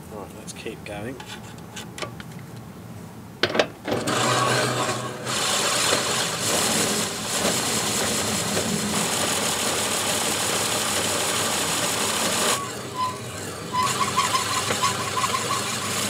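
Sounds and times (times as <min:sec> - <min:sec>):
abrasive strip grinding blades: 0:04.0 - 0:07.5
lawnmower blade cylinder spinning: 0:04.0 - 0:16.0.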